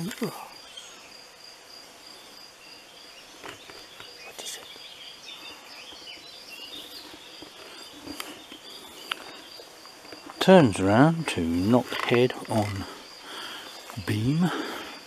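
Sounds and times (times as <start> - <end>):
cricket trilling: 0.0 - 15.0
bird chirps: 3.0 - 9.7.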